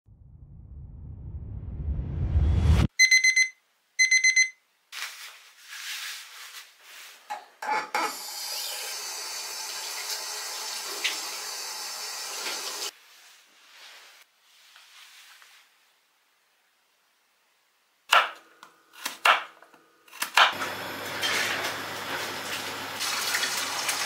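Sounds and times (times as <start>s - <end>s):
low rumble: 0.1s - 2.9s
alarm beeping: 3.0s - 4.6s
rustling: 4.9s - 7.3s, 13.0s - 16.0s
tap water running: 8.0s - 12.9s, 20.5s - 24.0s.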